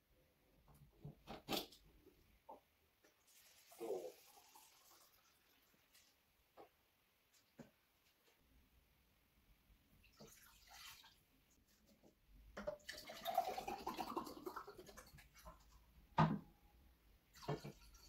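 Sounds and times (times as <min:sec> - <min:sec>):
water pouring into a glass: 0:03.2 - 0:05.8, 0:10.1 - 0:11.2, 0:12.7 - 0:15.6, 0:17.3 - 0:18.0.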